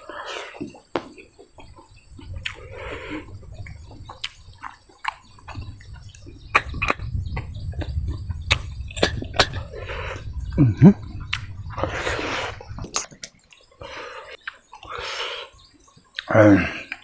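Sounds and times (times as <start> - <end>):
birds chirping: 0.0 - 17.0
man eating with wet smacks: 0.1 - 15.1, 15.7 - 16.3
low rumble: 5.4 - 12.9.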